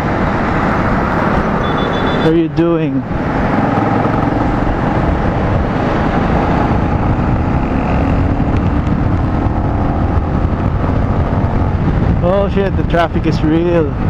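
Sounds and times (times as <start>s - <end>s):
motorcycle engine accelerating: 3.0s - 12.4s
wind on microphone: 3.0s - 14.0s.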